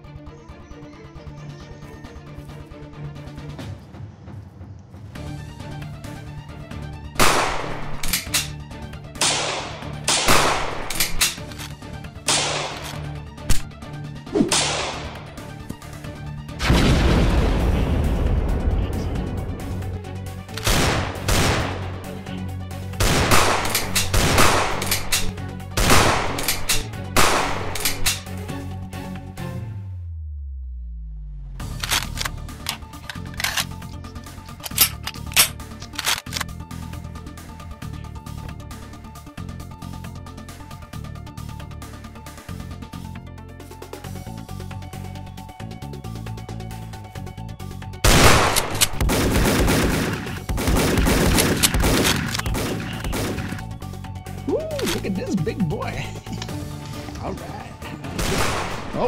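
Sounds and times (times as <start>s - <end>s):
background music with steady bass: 0.0s - 59.0s
sharp gunshots with ringing tail: 7.2s - 8.0s, 9.2s - 10.9s, 12.3s - 12.8s, 14.4s - 15.3s, 20.7s - 22.0s, 23.0s - 25.2s, 25.8s - 28.0s, 48.1s - 53.6s, 58.2s - 59.0s
rapid gunfire: 9.2s - 11.2s, 20.6s - 22.0s, 23.0s - 25.2s, 25.8s - 28.0s, 48.1s - 53.7s, 58.2s - 59.0s.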